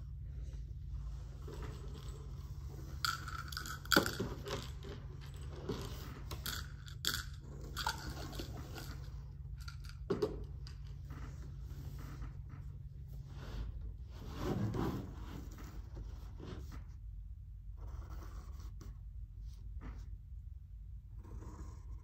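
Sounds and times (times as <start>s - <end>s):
low hum: 0.0s - 14.4s.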